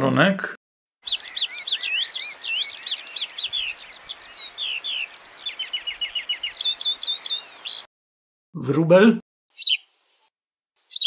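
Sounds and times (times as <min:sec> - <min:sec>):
skylark singing: 0:01.0 - 0:07.9, 0:09.5 - 0:10.0, 0:10.8 - 0:11.0.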